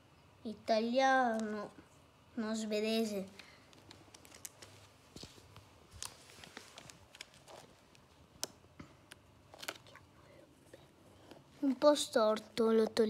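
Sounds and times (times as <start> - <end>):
paper clicks and crackles: 3.4 - 5.3, 5.9 - 10.0.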